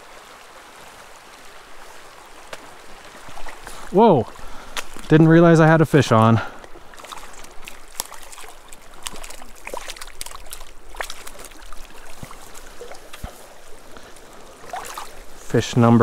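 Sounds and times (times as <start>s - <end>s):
stream running over gravel: 0.0s - 16.0s
small water splashes and knocks: 0.8s - 5.3s, 6.2s - 15.5s.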